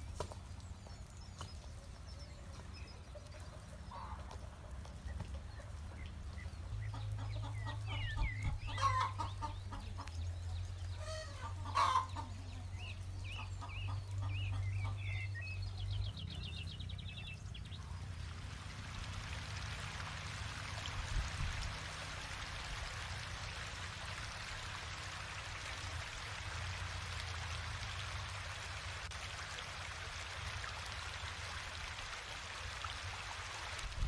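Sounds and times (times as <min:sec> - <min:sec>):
small birds chirping: 0:00.0 - 0:18.3
chickens clucking: 0:03.1 - 0:15.3.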